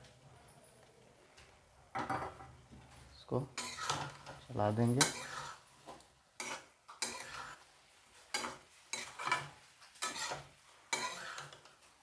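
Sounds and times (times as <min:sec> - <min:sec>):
spatula scraping metal pan: 0:03.6 - 0:11.8.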